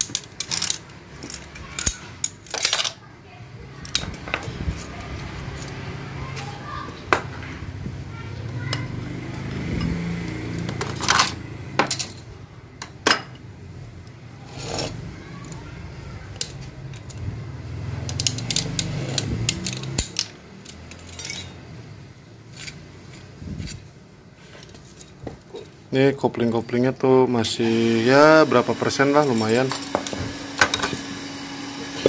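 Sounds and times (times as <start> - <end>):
metal clutch plates clinking: 18.0 - 21.8.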